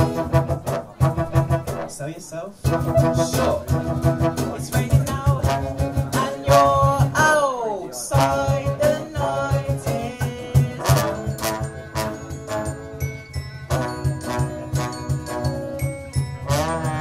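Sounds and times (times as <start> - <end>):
brass playing: 0.0 - 7.2, 8.1 - 17.0
steady low beat: 0.0 - 7.4, 8.1 - 12.6
acoustic guitar: 0.0 - 17.0.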